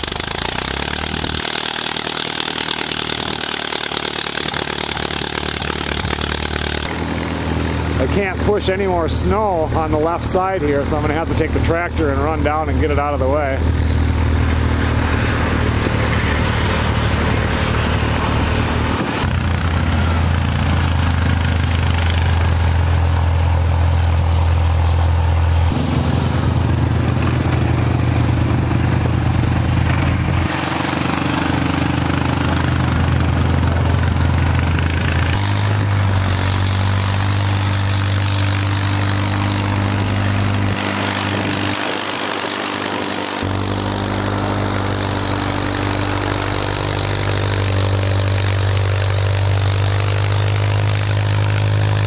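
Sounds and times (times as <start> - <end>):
four-wheeler engine pushing snow: 0.0 - 52.0
tractor engine running: 0.0 - 52.0.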